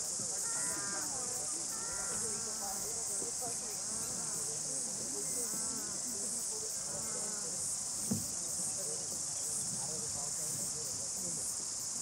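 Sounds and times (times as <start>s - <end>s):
insect chorus chirring: 0.0s - 12.0s
brief thump: 8.0s - 8.3s.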